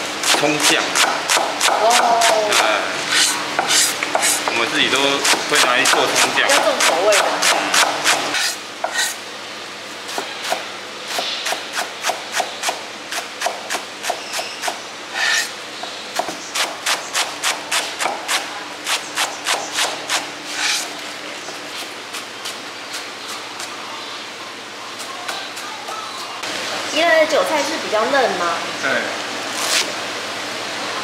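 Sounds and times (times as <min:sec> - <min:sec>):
cleaver chopping on wooden block: 0:00.2 - 0:02.7
cleaver scraping: 0:13.1 - 0:15.5, 0:18.9 - 0:20.9.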